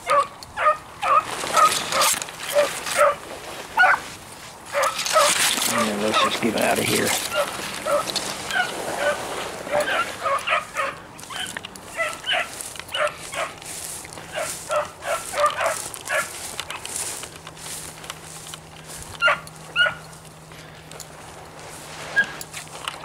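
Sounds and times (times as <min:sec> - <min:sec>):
hounds barking: 0:00.0 - 0:04.1, 0:04.7 - 0:17.0, 0:19.1 - 0:20.7.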